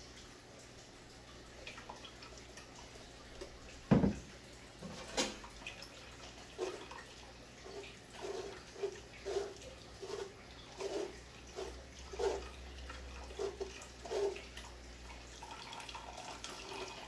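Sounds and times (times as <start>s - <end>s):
blender jar thump on counter: 3.9s - 4.2s
spoon scraping pulp: 6.6s - 6.9s, 7.6s - 12.6s, 13.2s - 14.5s.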